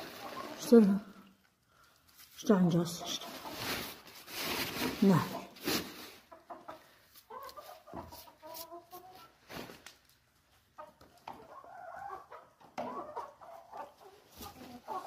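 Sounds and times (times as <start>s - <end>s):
hens clucking softly: 6.2s - 9.4s, 10.6s - 15.0s.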